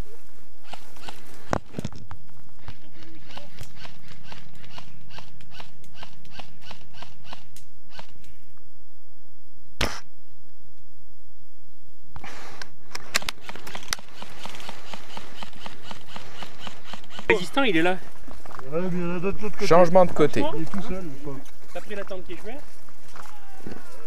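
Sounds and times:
airsoft rifle shot: 9.8 - 10.1
rustling: 12.2 - 18.8
rifle clicks: 12.9 - 17.3.

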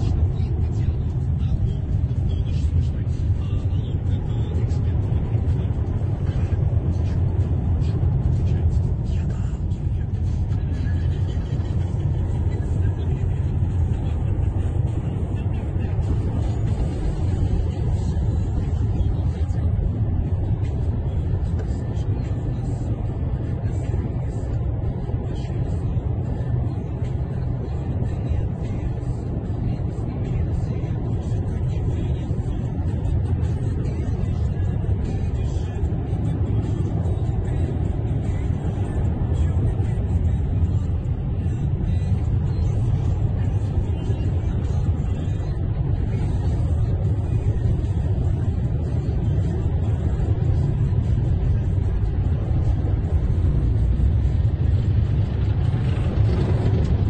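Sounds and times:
car road and engine noise: 0.0 - 57.0
tracked vehicles rumbling past: 0.0 - 57.0.

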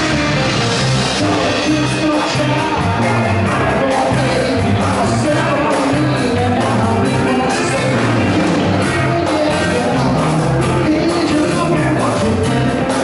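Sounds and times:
live blues band playing: 0.0 - 13.0
repeating bass line: 0.0 - 13.0.

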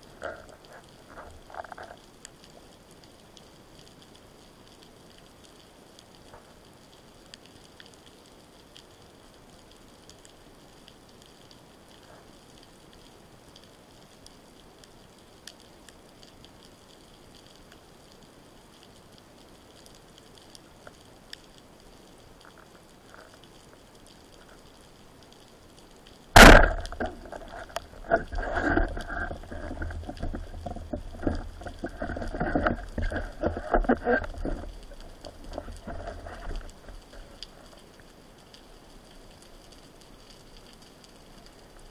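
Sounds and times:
speargun shot crack: 26.4 - 27.0.

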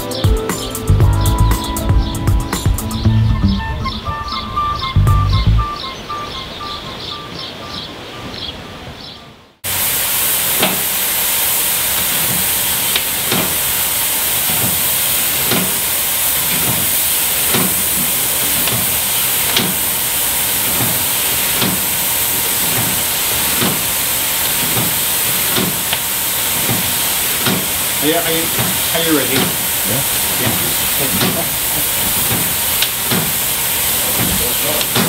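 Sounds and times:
steam hissing from pipework: 9.6 - 35.0.

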